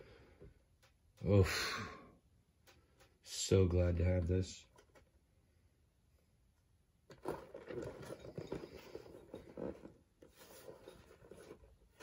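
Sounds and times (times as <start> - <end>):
cardboard and plastic rustling: 7.1 - 12.0.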